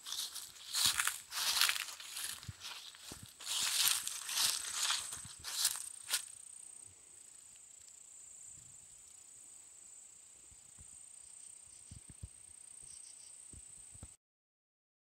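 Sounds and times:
footstep in dry leaves: 0:00.0 - 0:06.3.

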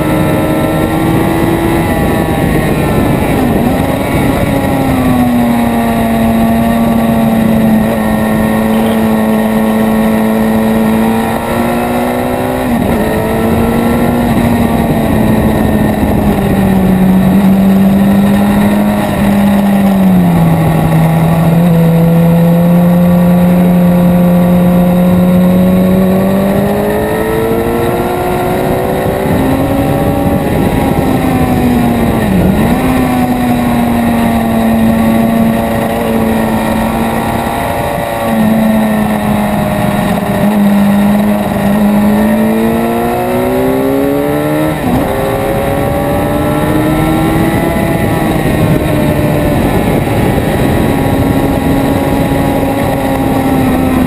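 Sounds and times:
motorcycle engine running hard: 0:00.0 - 0:54.0.

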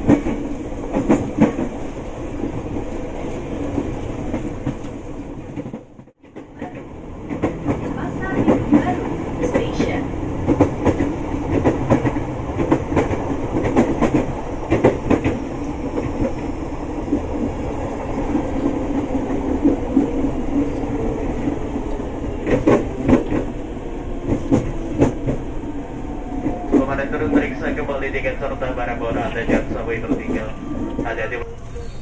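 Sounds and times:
wheels clacking over rail joints: 0:00.0 - 0:25.5
train rumbling on rails: 0:00.0 - 0:32.0.

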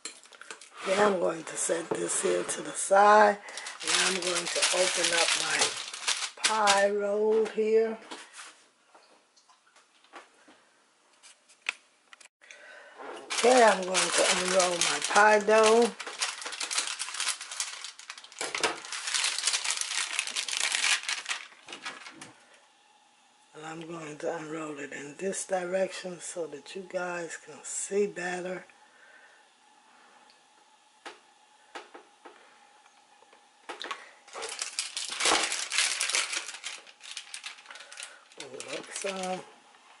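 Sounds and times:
plastic wrapping crinkling: 0:02.9 - 0:07.0, 0:13.3 - 0:22.3, 0:33.8 - 0:39.5.

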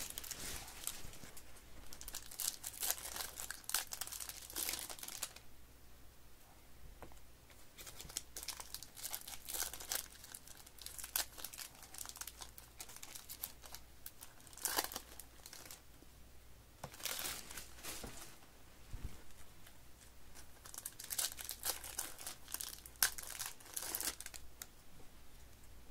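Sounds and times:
foil wrappers crinkling and tearing: 0:00.0 - 0:05.4, 0:07.8 - 0:15.8, 0:16.9 - 0:18.1, 0:20.4 - 0:24.5.

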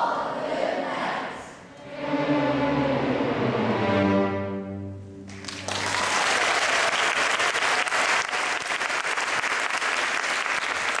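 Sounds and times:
string orchestra note: 0:01.8 - 0:05.7
audience applauding: 0:05.3 - 0:11.0.

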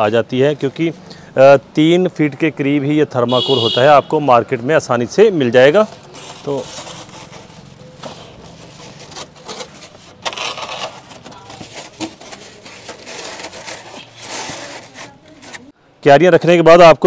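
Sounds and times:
polystyrene sheets scraping: 0:05.5 - 0:15.7.

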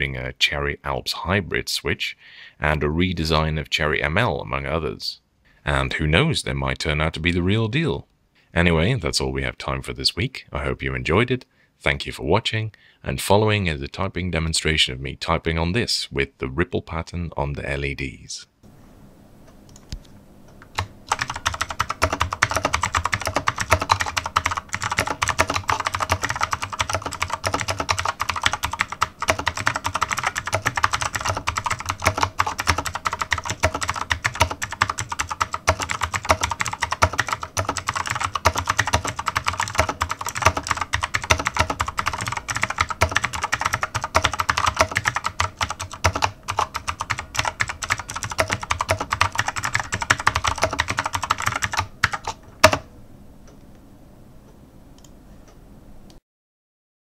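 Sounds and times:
mechanical keyboard typing: 0:20.8 - 0:52.9.

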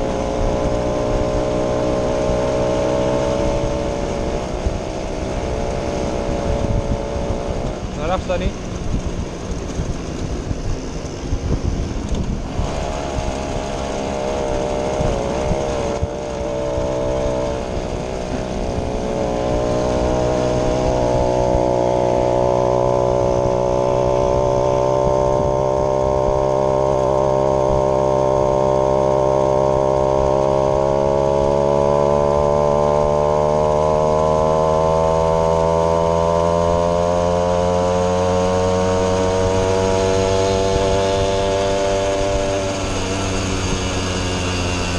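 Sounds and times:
moped engine buzzing: 0:00.0 - 0:44.9.

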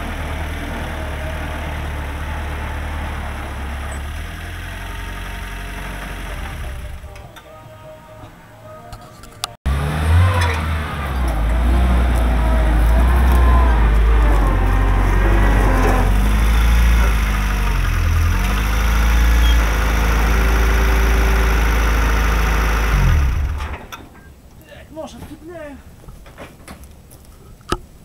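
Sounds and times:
tractor engine running: 0:00.0 - 0:24.5.

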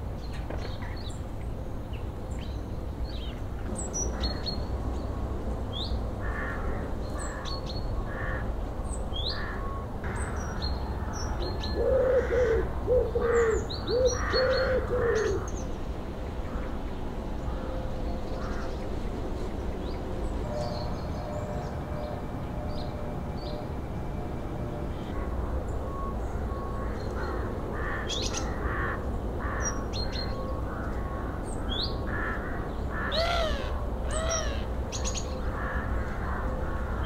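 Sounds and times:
lower-pitched bird call: 0:24.9 - 0:37.0.

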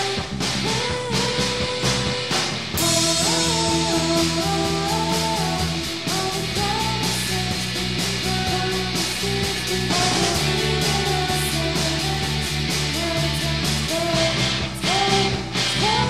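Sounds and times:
rock backing: 0:00.0 - 0:16.0
electric guitar sliding notes: 0:02.8 - 0:15.0.

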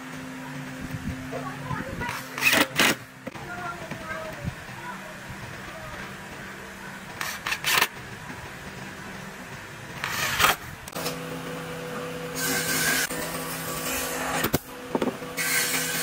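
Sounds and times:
steady machine hum: 0:00.0 - 0:16.0
drill driving screws: 0:02.1 - 0:03.0, 0:07.2 - 0:07.9.

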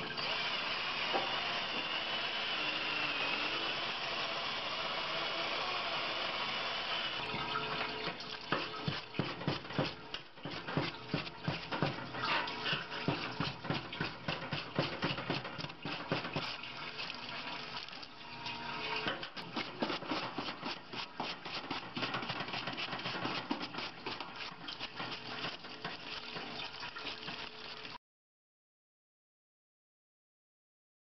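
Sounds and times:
fluid running and splashing: 0:07.2 - 0:28.0
brush bristles scrubbing: 0:08.4 - 0:18.0, 0:19.4 - 0:28.0.

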